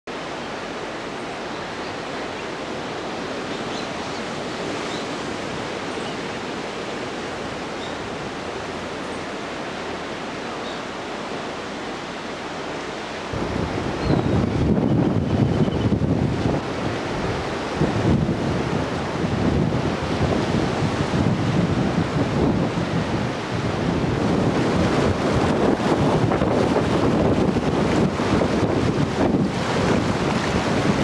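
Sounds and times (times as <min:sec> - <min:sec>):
sea surf breaking on rocks: 0:00.6 - 0:31.0
wind buffeting microphone: 0:13.3 - 0:31.0.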